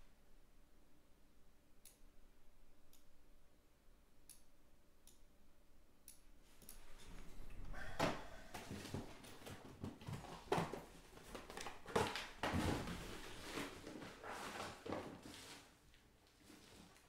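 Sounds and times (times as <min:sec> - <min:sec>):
objects rustling: 0:06.9 - 0:17.0.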